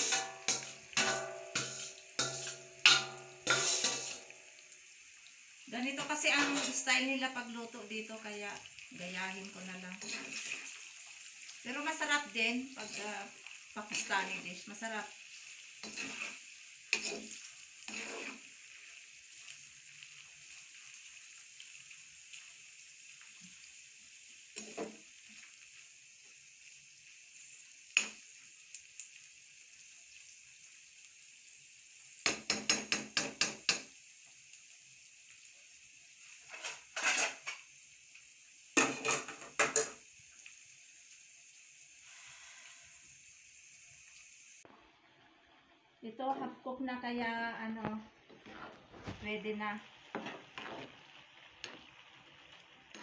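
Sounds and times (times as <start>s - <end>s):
metal spoon scraping and clanking pan: 0.0s - 4.4s, 6.0s - 7.0s, 9.9s - 10.9s, 12.7s - 14.4s, 15.3s - 18.6s, 24.6s - 25.0s, 36.4s - 37.7s, 38.8s - 40.0s, 48.3s - 49.2s, 50.1s - 51.0s, 51.6s - 51.9s
vegetables sizzling in oil: 0.0s - 53.0s.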